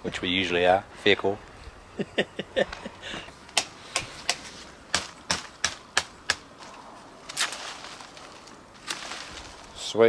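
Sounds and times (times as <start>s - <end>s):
knife chopping wood: 3.5s - 6.5s.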